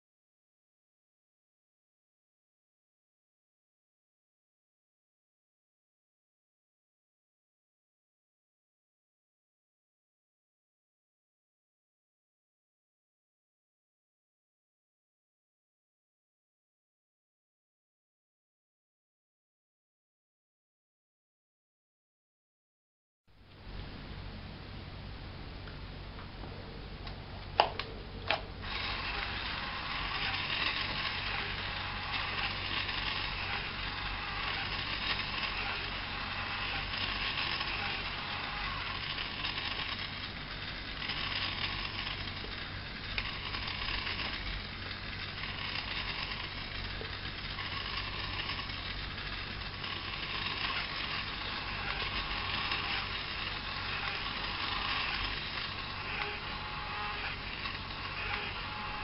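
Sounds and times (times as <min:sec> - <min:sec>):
small gear motors whirring: 0:28.2 - 0:59.0.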